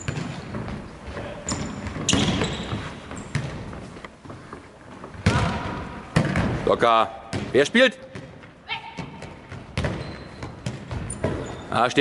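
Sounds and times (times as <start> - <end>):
shoes squeaking on court: 0.0 - 5.6, 8.3 - 11.9
ball thudding on hall floor: 5.1 - 6.6, 8.1 - 11.5.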